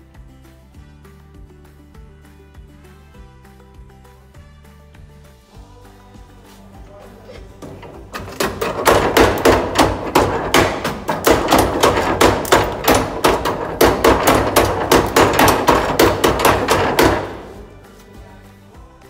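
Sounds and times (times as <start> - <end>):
model stamp mill pounding: 7.6 - 17.7.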